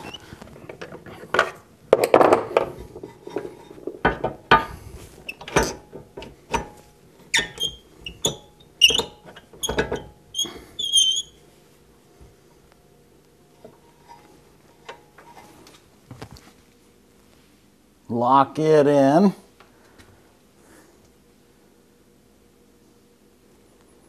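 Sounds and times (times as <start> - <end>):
short high squeaks: 0.0 - 0.3, 7.3 - 11.4
metal clunks and scrapes: 0.0 - 11.1, 13.6 - 15.8.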